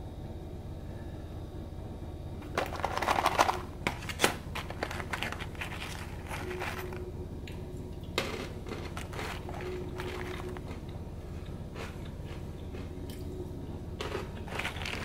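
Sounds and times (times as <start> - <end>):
low hum: 0.0 - 15.0
nuts rattling in plastic tub: 2.5 - 7.0.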